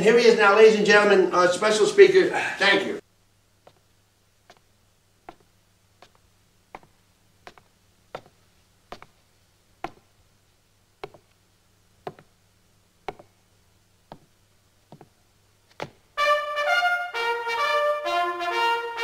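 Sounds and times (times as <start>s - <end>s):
boot footsteps on stage floor: 3.6s - 10.2s, 11.0s - 11.3s, 12.0s - 12.4s, 13.0s - 13.4s, 14.0s - 16.1s.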